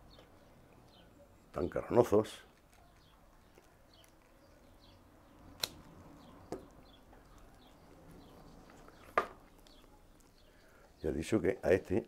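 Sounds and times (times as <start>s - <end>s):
pruning shears snipping roots: 5.5s - 5.9s.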